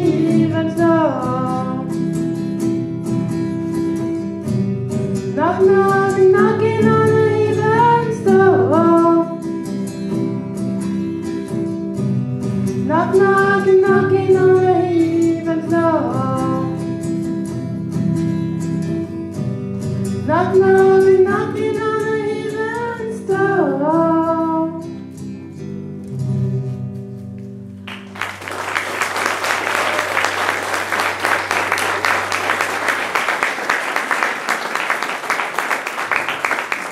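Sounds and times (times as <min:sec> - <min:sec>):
woman singing wordlessly: 0:00.0 - 0:02.0, 0:05.3 - 0:09.5, 0:12.8 - 0:16.9, 0:20.2 - 0:25.0
acoustic guitars playing: 0:00.0 - 0:36.9
audience applause: 0:27.9 - 0:36.9.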